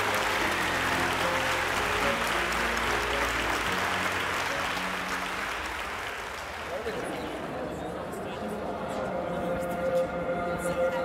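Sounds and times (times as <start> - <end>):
music with long held notes: 0.0 - 6.1, 8.6 - 11.0
audience applauding: 0.0 - 7.6.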